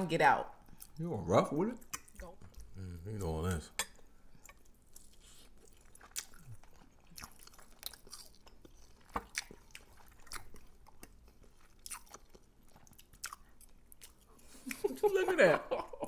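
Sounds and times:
close chewing: 0:04.3 - 0:14.9.

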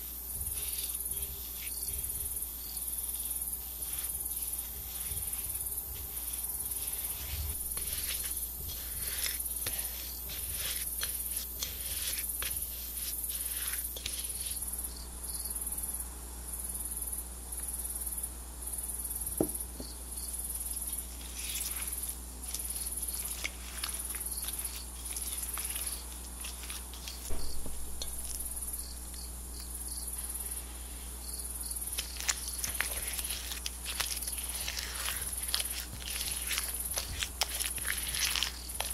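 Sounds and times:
spatula scraping glass bowl: 0:00.0 - 0:14.6, 0:20.8 - 0:29.0, 0:32.0 - 0:38.9.

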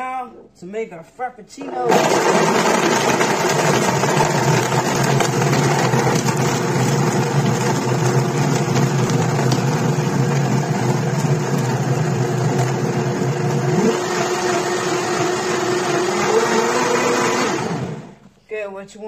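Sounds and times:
blender motor whirring: 0:01.9 - 0:18.2.

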